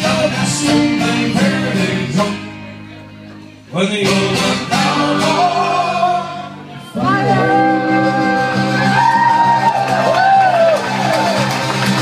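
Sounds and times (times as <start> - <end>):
accordion: 0.0 - 9.0
acoustic guitar: 0.0 - 12.0.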